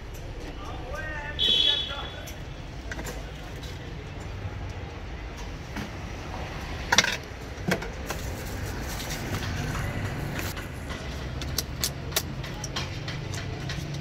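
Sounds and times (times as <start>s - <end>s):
plastic cups clicking and knocking: 6.8s - 14.0s.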